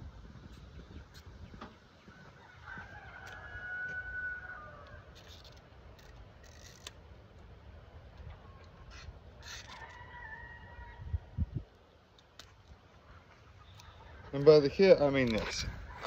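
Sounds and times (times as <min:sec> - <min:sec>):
low wind rumble: 0:00.0 - 0:16.0
rooster crowing: 0:02.2 - 0:05.2, 0:09.6 - 0:11.2.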